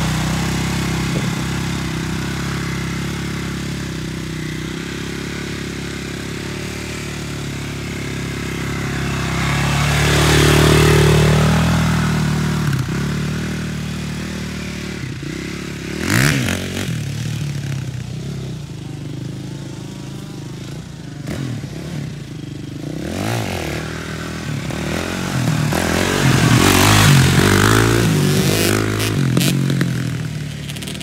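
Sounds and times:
quad engine revving: 0.0s - 31.0s.

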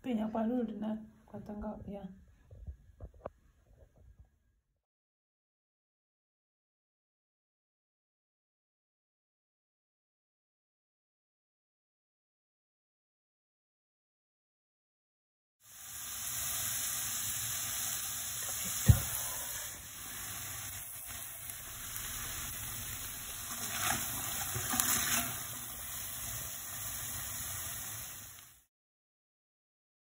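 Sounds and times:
vegetables sizzling in oil: 15.6s - 28.7s.

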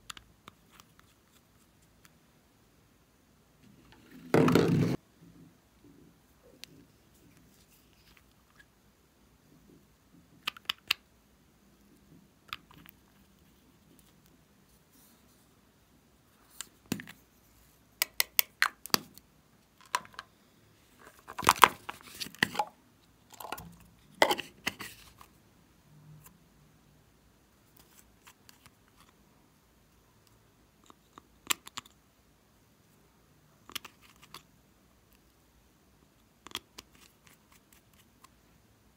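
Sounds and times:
plastic container clicking and crinkling: 21.1s - 22.7s.

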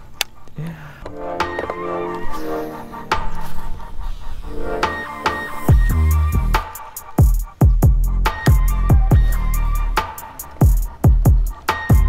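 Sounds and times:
hi-hat clicks: 2.8s - 12.0s
deep electronic drum hits: 5.7s - 6.6s, 7.2s - 9.4s, 10.6s - 12.0s.

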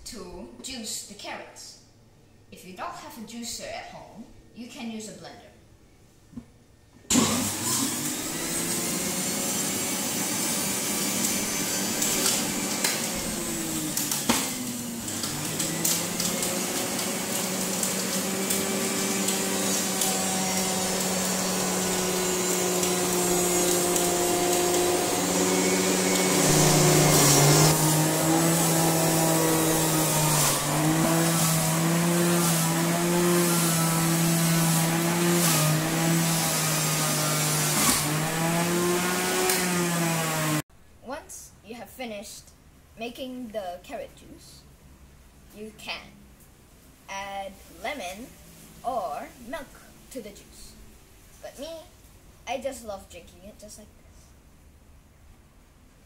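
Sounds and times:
electric juicer motor whirring: 7.1s - 40.6s
carrots being shredded: 7.2s - 40.0s.

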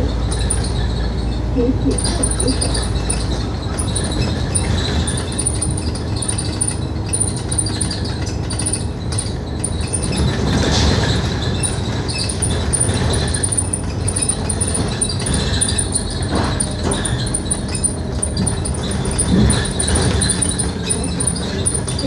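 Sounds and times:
bus engine and road noise: 0.0s - 22.0s.

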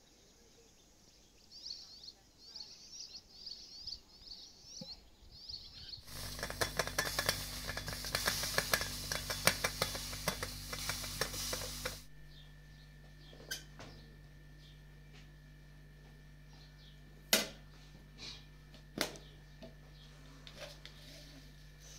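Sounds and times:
faint bird chirps: 0.0s - 6.0s
kettle boiling hiss and crackle: 6.0s - 12.4s, 20.4s - 21.9s
low hum: 6.0s - 21.9s.

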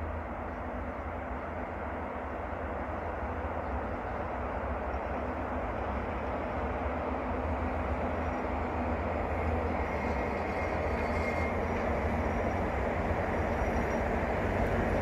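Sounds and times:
freight train rumbling on rails: 0.0s - 15.0s.

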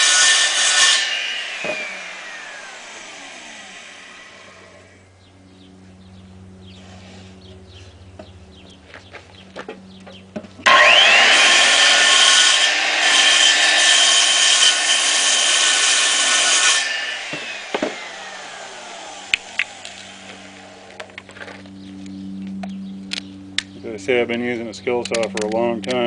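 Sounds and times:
circular saw cutting wood: 0.0s - 5.0s, 10.6s - 21.3s
sharp knocks: 17.3s - 18.0s.

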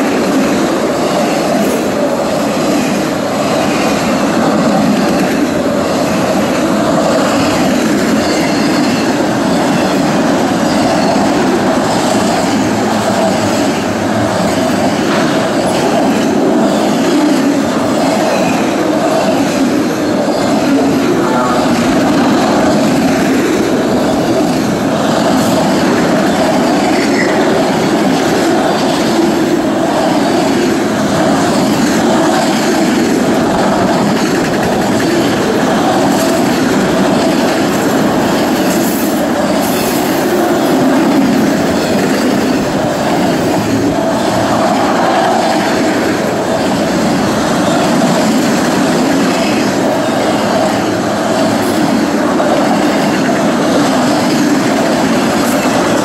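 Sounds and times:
freight train wheels rumbling: 0.0s - 56.0s.

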